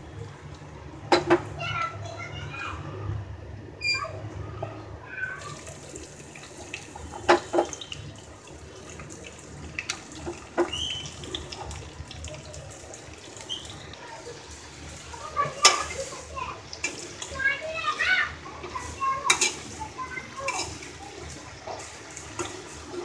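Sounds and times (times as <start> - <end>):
vegetables sizzling in oil: 12.9 - 23.0.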